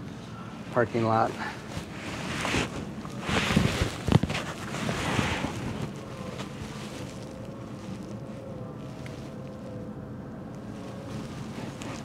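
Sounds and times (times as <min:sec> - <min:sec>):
wind gusting on microphone: 0:01.6 - 0:09.4.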